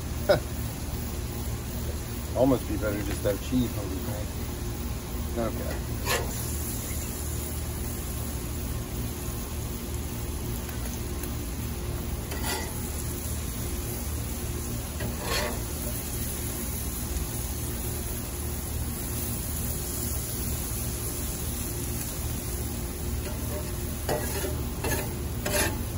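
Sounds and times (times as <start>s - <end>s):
food sizzling on a griddle: 0.0s - 25.9s
low gas grill rumble: 0.0s - 25.9s
metal spatula scraping griddle: 5.5s - 7.0s, 12.2s - 13.2s, 14.8s - 16.4s, 23.2s - 25.9s.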